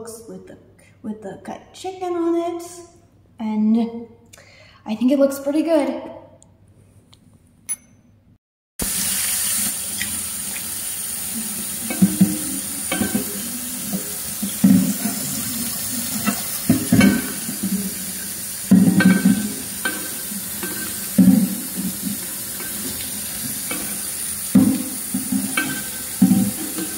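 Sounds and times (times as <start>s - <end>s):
tap running into a sink: 8.8s - 26.9s
sponge scrubbing glass dish: 11.4s - 26.9s.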